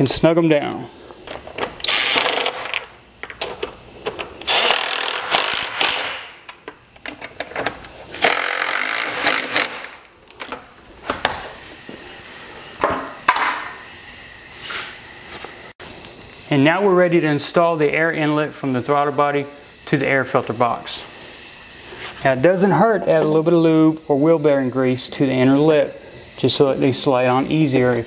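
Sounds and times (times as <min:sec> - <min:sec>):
power ratchet running: 0:01.8 - 0:03.4, 0:04.4 - 0:06.4, 0:08.1 - 0:10.0.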